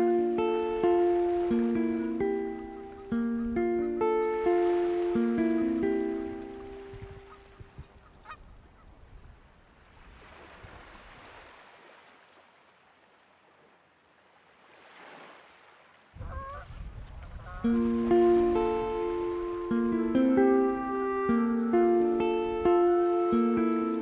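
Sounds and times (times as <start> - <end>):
plucked acoustic guitar music: 0.0 - 7.5, 17.6 - 24.0
goose honk: 16.2 - 16.8.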